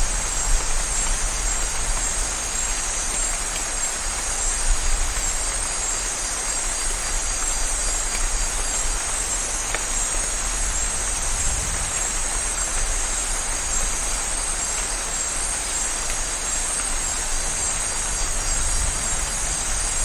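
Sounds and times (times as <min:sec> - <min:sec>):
rain pouring: 0:00.0 - 0:20.0.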